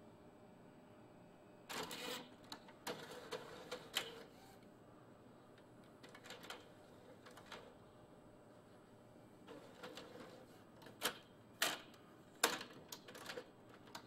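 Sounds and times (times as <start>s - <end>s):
inkjet printer clicking: 5.9s - 7.7s.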